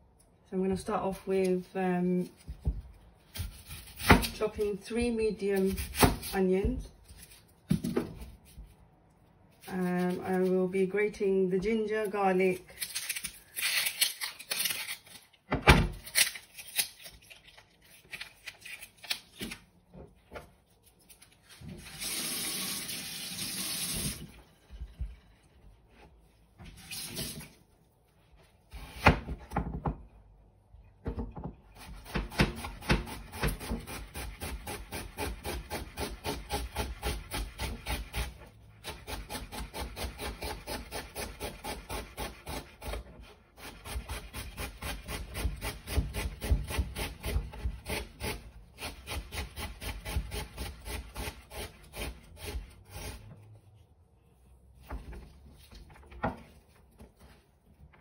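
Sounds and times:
knife chopping on cutting board: 0:02.5 - 0:04.4, 0:31.8 - 0:43.0, 0:43.6 - 0:53.2.

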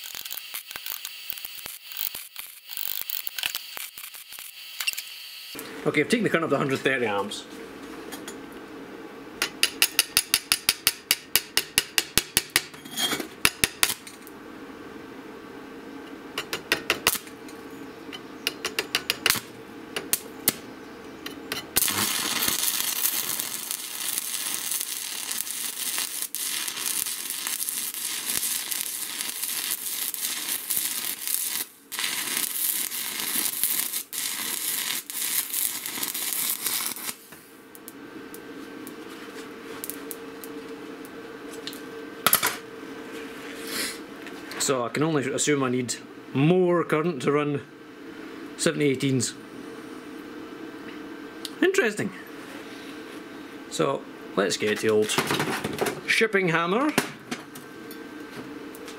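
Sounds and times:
welding rod scratching on steel: 0:00.0 - 0:05.5, 0:12.8 - 0:14.0, 0:21.5 - 0:37.3
welding arc crackling hiss: 0:00.0 - 0:07.4, 0:16.3 - 0:17.5, 0:18.4 - 0:20.6, 0:21.2 - 0:44.8, 0:51.4 - 0:58.9
steady hum: 0:00.0 - 0:58.9.

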